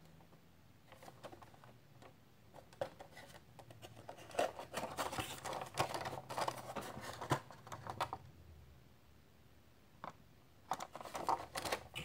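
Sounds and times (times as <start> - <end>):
cardboard and plastic rustling: 0.8 - 8.2, 10.7 - 12.0.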